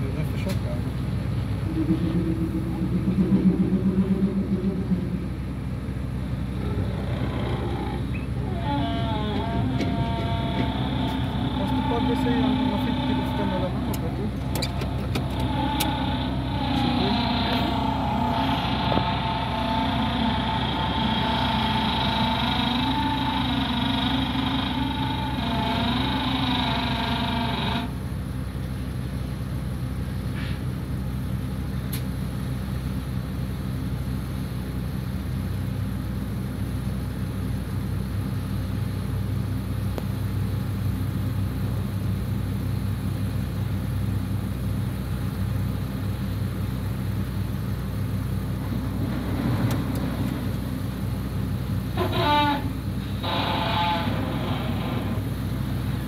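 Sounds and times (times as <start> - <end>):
heavy vehicle engines humming: 0.0 - 56.0
high wavering multi-tone sound: 1.3 - 6.1.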